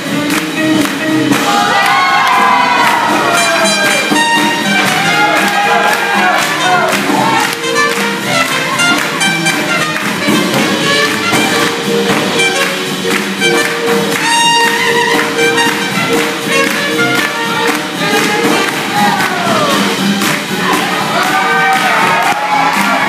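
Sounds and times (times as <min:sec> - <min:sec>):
swing jazz band playing: 0:00.0 - 0:23.0.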